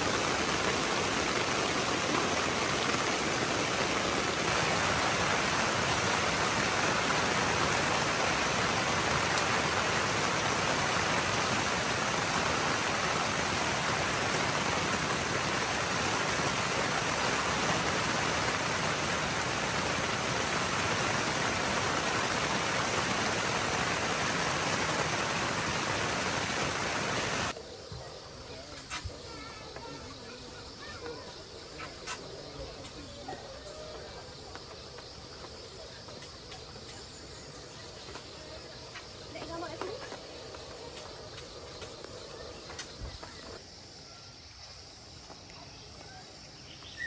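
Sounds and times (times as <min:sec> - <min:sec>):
flowing water rushing: 0:00.0 - 0:27.6.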